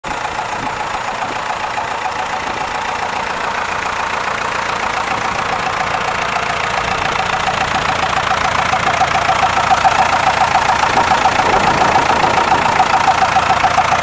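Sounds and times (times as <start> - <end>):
diesel engine idling: 0.0 - 14.0.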